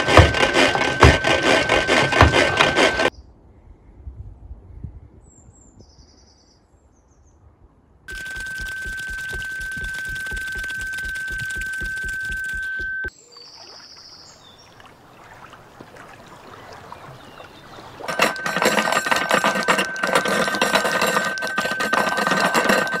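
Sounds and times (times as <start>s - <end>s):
steady high-pitched tone: 0.0s - 3.1s, 8.1s - 13.1s, 18.0s - 23.0s.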